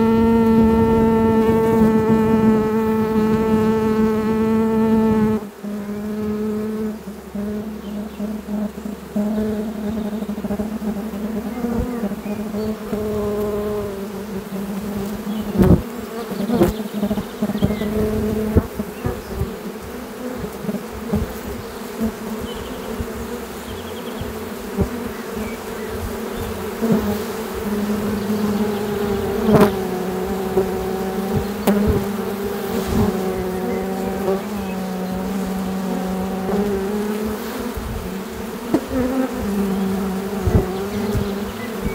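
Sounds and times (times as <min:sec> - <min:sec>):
bee swarm buzzing: 0:00.0 - 0:41.9.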